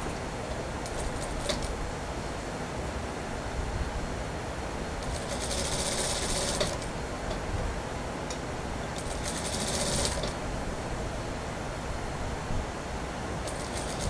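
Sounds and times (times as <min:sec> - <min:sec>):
sewing machine buzzing: 0:00.8 - 0:01.8, 0:05.0 - 0:06.9, 0:09.0 - 0:10.4, 0:13.4 - 0:14.0.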